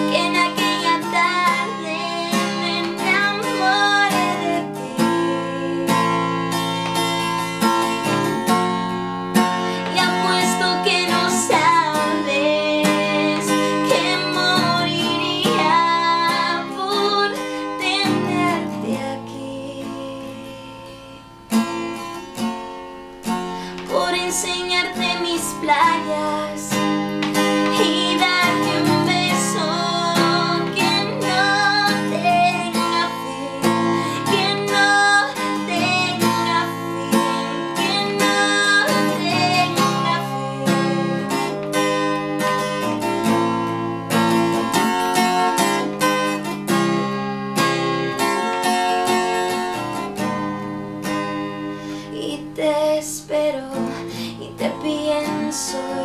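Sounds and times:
woman singing: 0.0 - 8.8, 9.7 - 21.2, 23.6 - 41.9, 44.2 - 46.0, 52.0 - 56.0
acoustic guitar strumming: 0.0 - 56.0.

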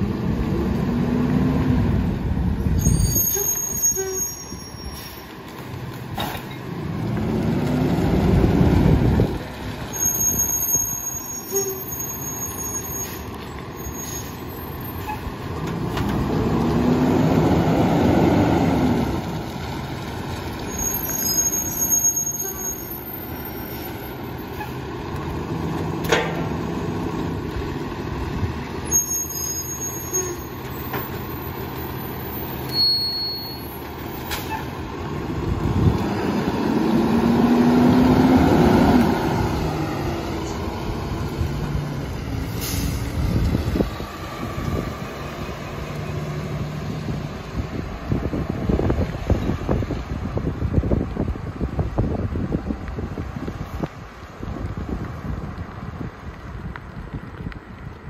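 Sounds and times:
garbage truck diesel engine: 0.0 - 54.6.

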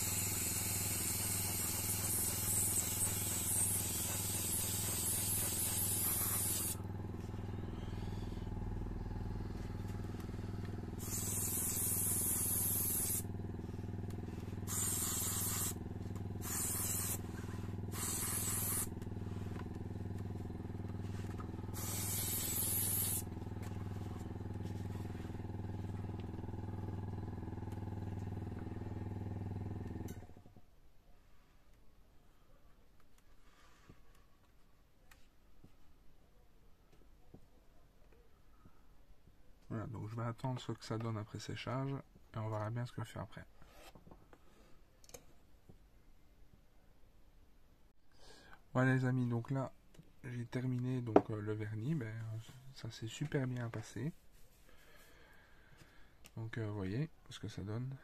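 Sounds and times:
airbrush spraying in hissing bursts: 0.0 - 6.8, 9.8 - 25.4
airbrush compressor humming: 0.0 - 30.4.

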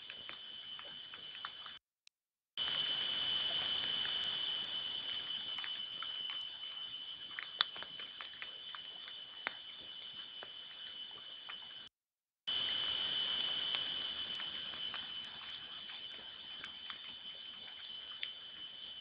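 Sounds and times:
small clicks and snaps: 0.0 - 1.8, 5.1 - 11.9, 13.7 - 18.7
steady high whine: 2.6 - 19.0.

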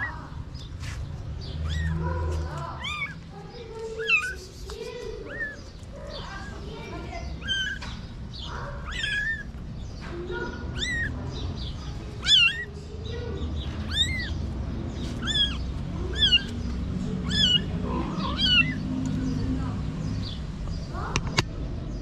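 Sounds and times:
kitten mewing: 1.6 - 5.7, 7.3 - 7.8, 8.8 - 9.6, 10.5 - 11.2, 12.1 - 12.8, 13.8 - 14.4, 15.0 - 18.9.

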